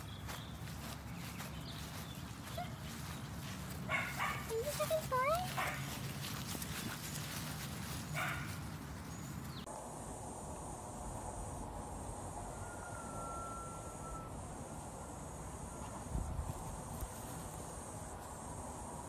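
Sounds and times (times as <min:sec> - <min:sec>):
puppy yipping: 0:03.9 - 0:05.9
insect buzz: 0:09.6 - 0:19.0
faint whistle-like tone: 0:12.5 - 0:14.4.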